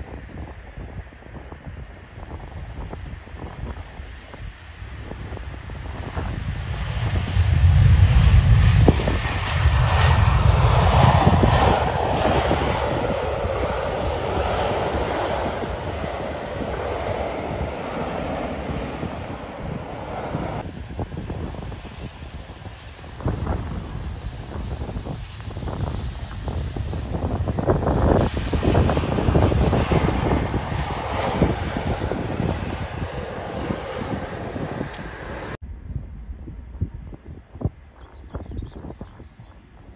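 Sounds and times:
jet engines rumbling: 0.0s - 39.9s
wind buffeting microphone: 0.0s - 39.9s.

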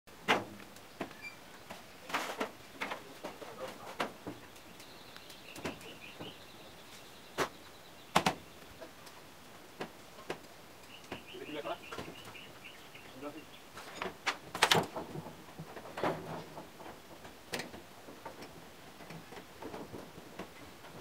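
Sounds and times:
metal roofing sheets clanking: 0.1s - 4.6s, 13.7s - 21.0s
bird chirping: 0.7s - 9.4s, 10.1s - 14.2s.

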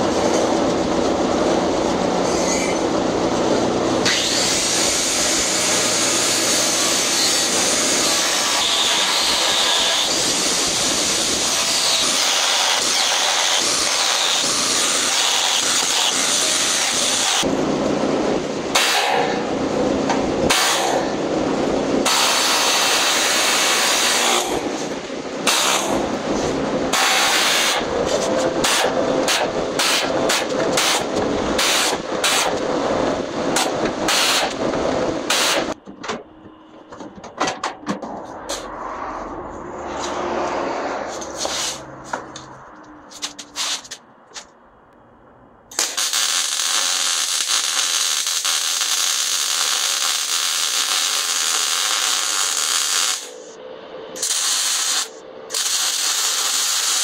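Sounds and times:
power tool harsh hiss: 4.0s - 17.4s, 45.7s - 53.6s, 54.2s - 57.0s.

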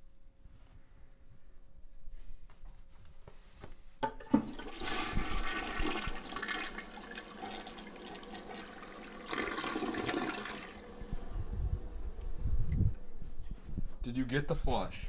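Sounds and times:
toilet flush click: 4.1s - 11.1s
toilet flushing water rush: 4.2s - 12.3s.

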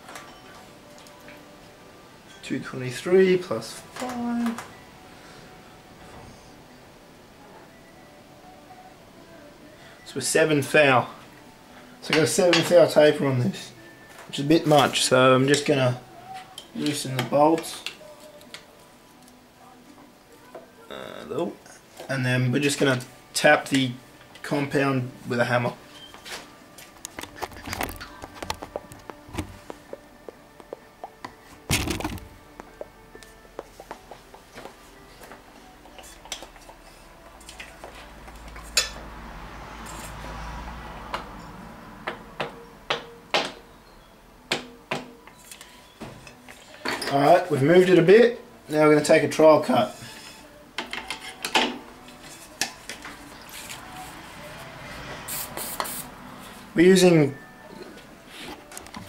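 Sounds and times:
aerosol can spraying: 55.3s - 56.1s.

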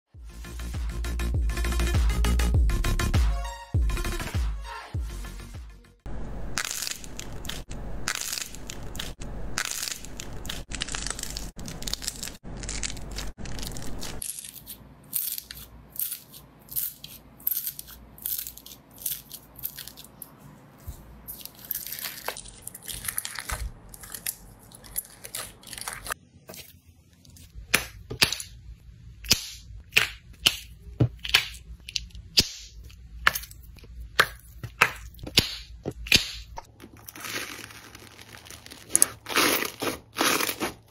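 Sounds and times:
crackling foam bead slime: 6.6s - 19.9s
slime squelching: 6.6s - 28.6s, 29.2s - 40.9s
sharp sticky pops: 34.1s - 36.7s.

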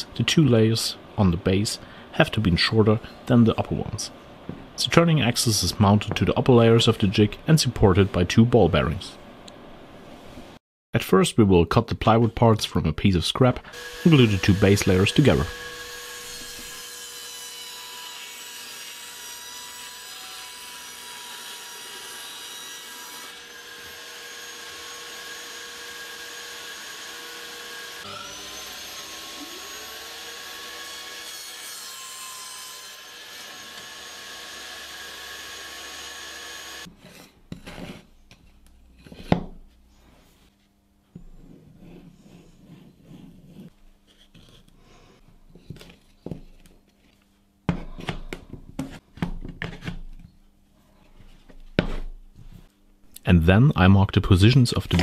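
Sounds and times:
table saw cutting plywood: 13.7s - 36.9s.

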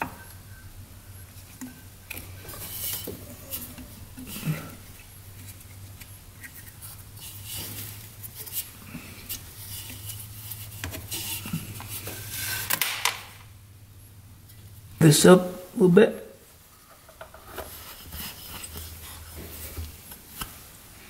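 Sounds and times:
steady low hum: 0.0s - 21.0s
rustle: 1.2s - 13.5s.

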